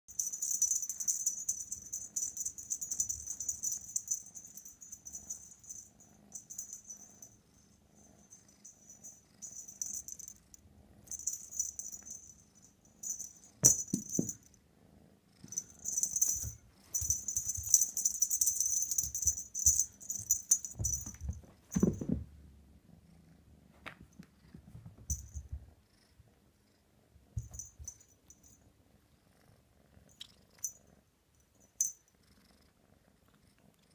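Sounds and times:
toy rattling: 0.1 - 7.4, 8.1 - 14.5, 15.4 - 22.1
kitten purring: 32.0 - 33.9.

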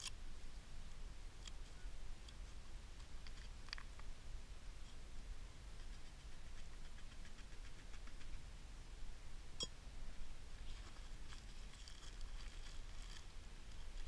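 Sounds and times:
plastic bag crinkling: 11.3 - 14.0.

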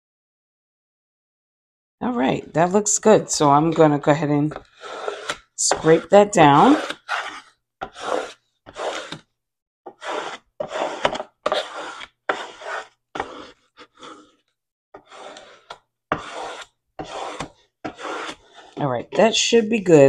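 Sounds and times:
plastic scraper rasping on tape: 4.5 - 9.3, 9.9 - 18.8.

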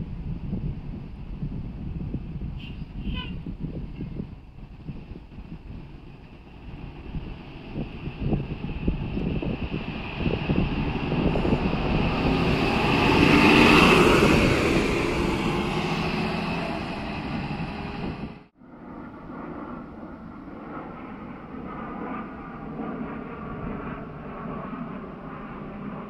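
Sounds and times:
bus engine and tyres: 0.0 - 18.5
airplane flying overhead: 0.0 - 26.0.

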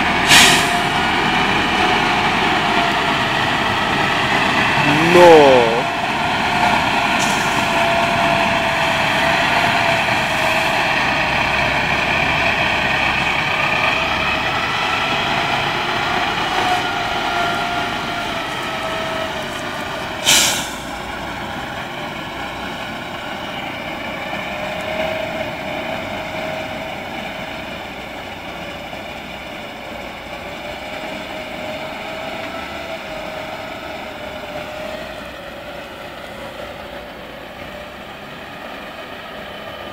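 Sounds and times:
brief sharp hiss: 0.3 - 0.8, 20.2 - 21.0.

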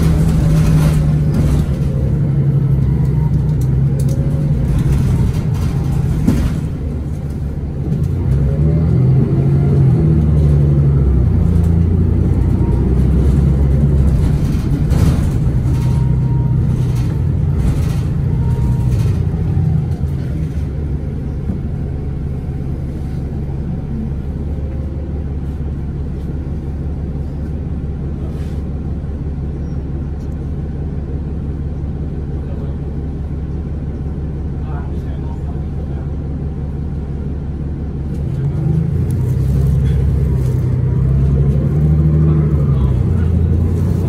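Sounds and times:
knocks and rattles: 0.0 - 2.4, 3.6 - 8.4, 13.0 - 19.6
bus diesel engine running: 0.0 - 44.0.

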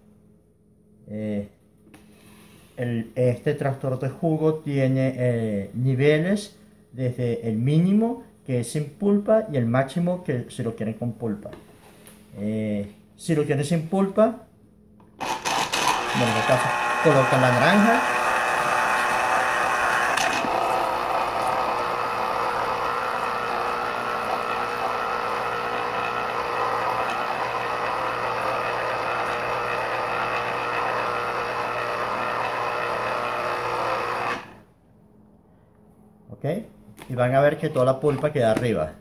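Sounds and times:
electric juicer motor running: 15.2 - 34.6.

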